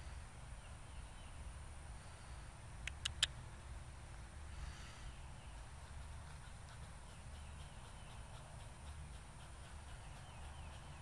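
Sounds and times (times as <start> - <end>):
squirrel barking alarm call: 5.5 - 11.0.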